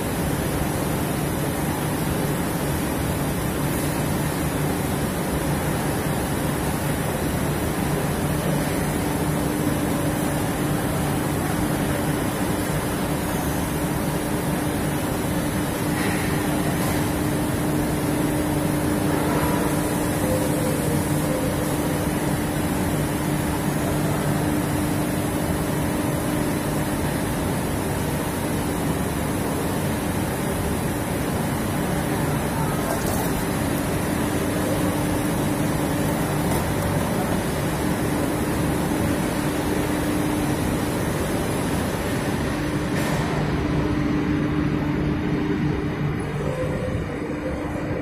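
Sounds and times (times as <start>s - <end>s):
factory machinery rumble: 0.0s - 48.0s
low even hum: 31.0s - 48.0s.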